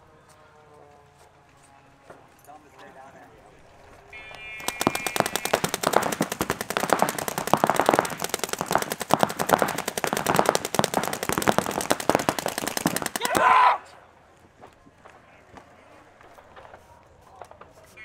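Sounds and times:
paintball markers firing rapidly: 4.2s - 13.6s.

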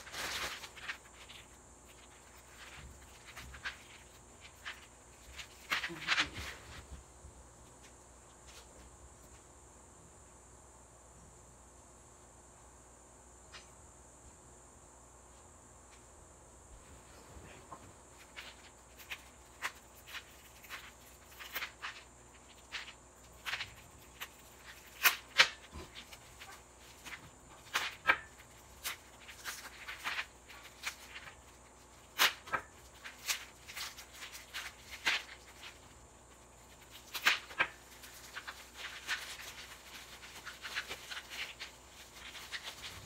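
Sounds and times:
plastic wrapping crinkling: 0.0s - 6.9s, 17.4s - 43.0s.

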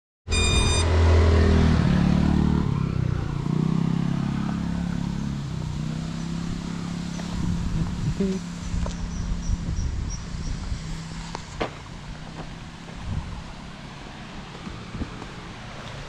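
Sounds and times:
short high beep: 0.3s - 1.0s
drone motors humming: 0.3s - 1.7s.

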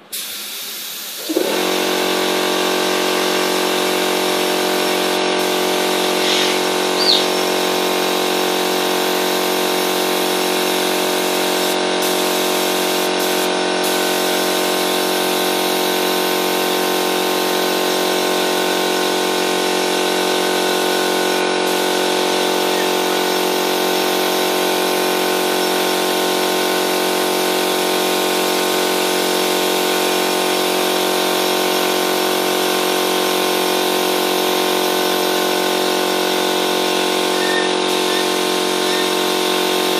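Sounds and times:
air compressor humming: 0.0s - 39.9s
spray gun air hissing: 0.1s - 18.7s, 20.5s - 25.9s, 36.2s - 39.9s.

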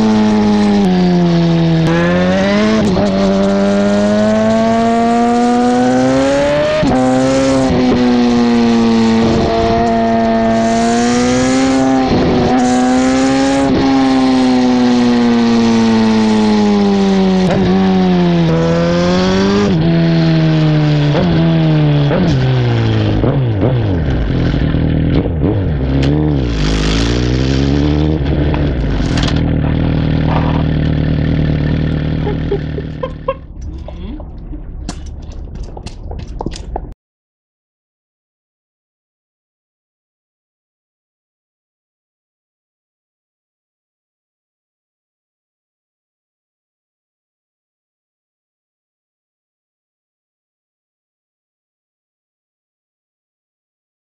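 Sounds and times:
motorcycle exhaust note: 0.0s - 36.8s.

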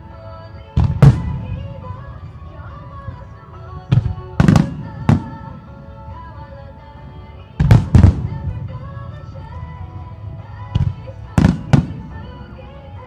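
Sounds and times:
music playing: 0.0s - 13.0s.

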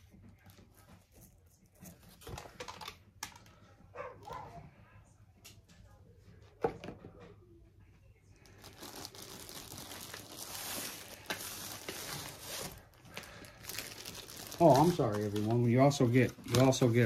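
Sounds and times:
paper rustling and crinkling: 8.4s - 17.0s.

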